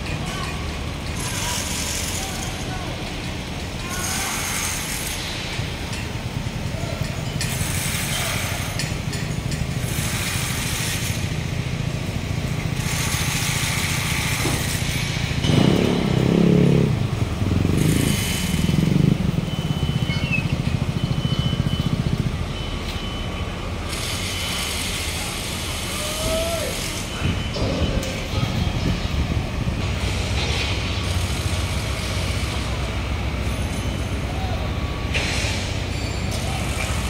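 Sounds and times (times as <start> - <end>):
road traffic hum: 0.0 - 37.0
vehicle engine passing close: 14.9 - 22.6.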